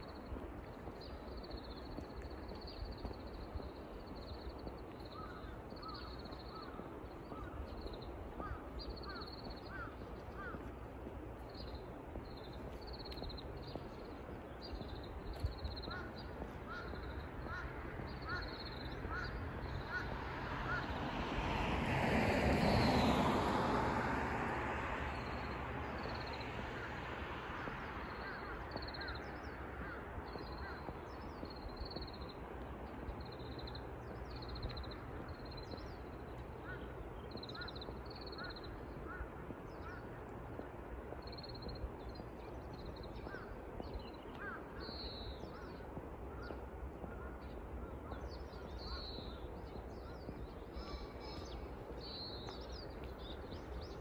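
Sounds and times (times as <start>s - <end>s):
birds chirping: 41.2s - 54.0s.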